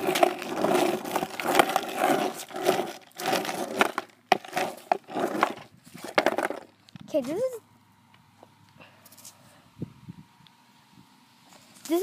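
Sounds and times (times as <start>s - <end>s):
skateboard clacks: 0.0s - 6.7s
skateboard wheels rolling on asphalt: 0.0s - 7.0s.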